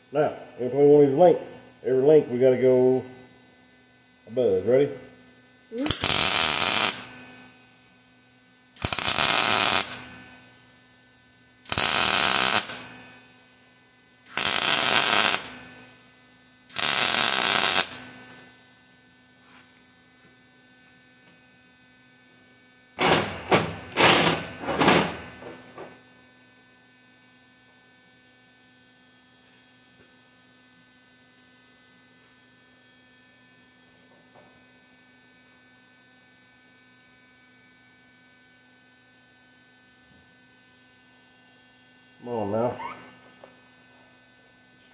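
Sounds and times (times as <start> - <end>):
electrical hum: 0.0 - 44.9
welder arc crackling: 5.7 - 7.9, 8.8 - 10.4, 11.7 - 13.1, 14.3 - 15.8, 16.7 - 18.4.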